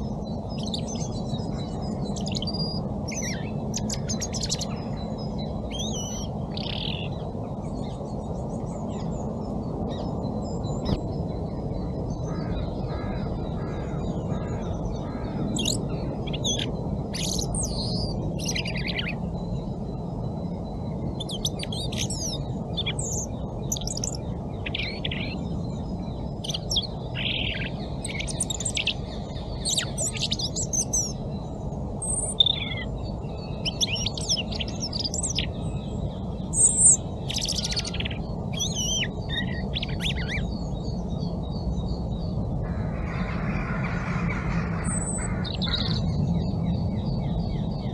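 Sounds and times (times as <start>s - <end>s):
robin singing: 0.5s - 7.2s, 14.6s - 19.2s, 21.1s - 31.4s, 32.0s - 41.6s.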